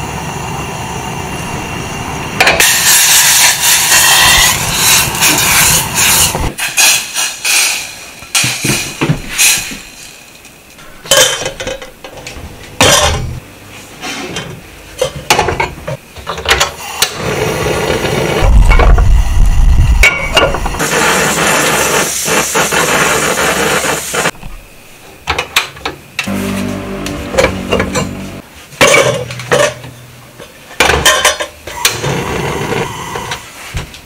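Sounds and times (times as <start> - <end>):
gas stove burner hissing: 0.0 - 13.4, 16.4 - 34.0
pot and utensils clattering: 10.8 - 13.4, 28.8 - 31.6
low rumble: 26.3 - 30.6.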